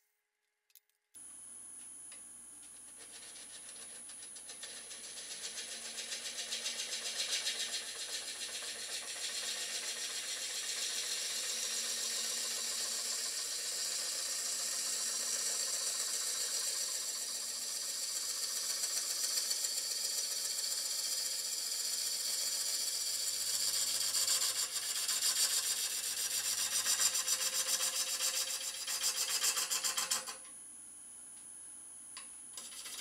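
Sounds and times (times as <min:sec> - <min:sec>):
turning tool cutting wood: 0:03.2 - 0:30.4
wood lathe whining: 0:03.2 - 0:30.4.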